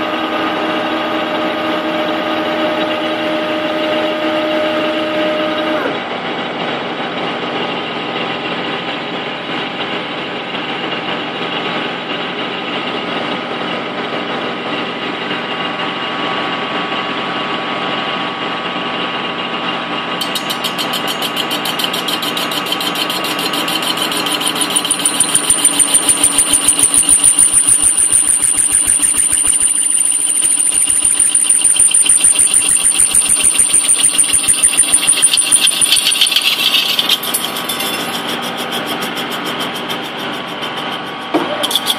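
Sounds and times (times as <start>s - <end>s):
lathe tool cutting metal: 0.0s - 8.4s, 20.2s - 41.9s
lathe spindle whine: 0.0s - 41.9s.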